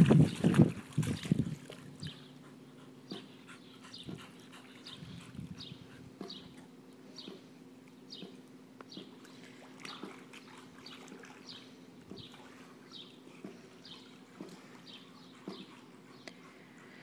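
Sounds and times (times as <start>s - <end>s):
water splashing: 0.0s - 2.0s, 9.2s - 14.8s.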